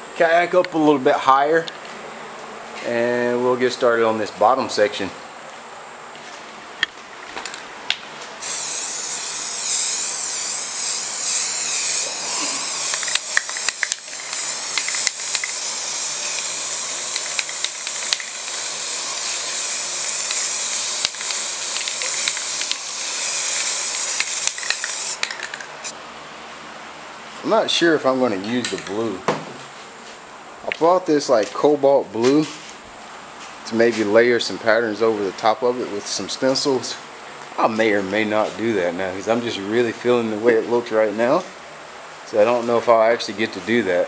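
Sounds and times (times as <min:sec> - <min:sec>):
spray paint hissing from can: 0:08.4 - 0:26.0.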